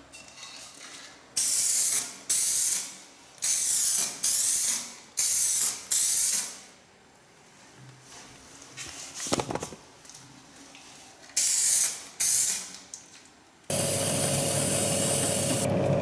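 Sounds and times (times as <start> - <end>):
spray paint can hissing: 1.4 - 6.6, 11.4 - 12.7, 13.7 - 15.7.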